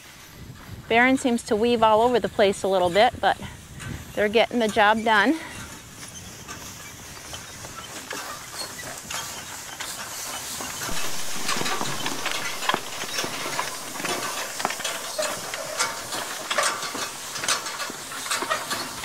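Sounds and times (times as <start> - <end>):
hay rake tines rattling: 4.2 - 19.0
steady hiss: 10.1 - 19.0.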